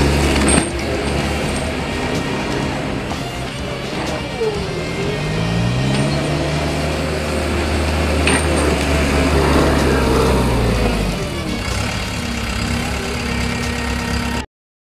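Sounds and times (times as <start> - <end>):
loader engine running: 0.0 - 14.5.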